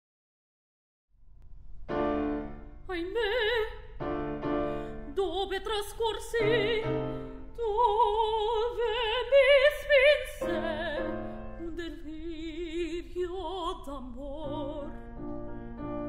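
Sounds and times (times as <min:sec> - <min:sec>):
piano playing: 0:01.9 - 0:12.6, 0:14.4 - 0:16.0
woman singing operatic recitative: 0:02.8 - 0:03.9, 0:05.0 - 0:15.0.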